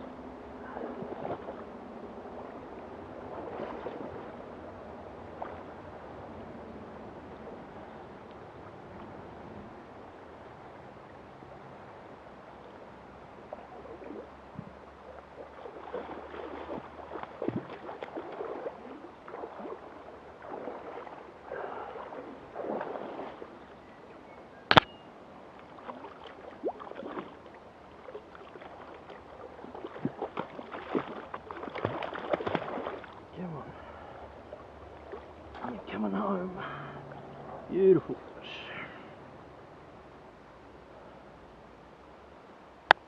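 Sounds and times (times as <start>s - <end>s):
river flowing: 0.0s - 43.0s
fish splashing in water: 15.4s - 23.5s, 25.7s - 33.3s
sharp knock: 24.7s - 24.9s.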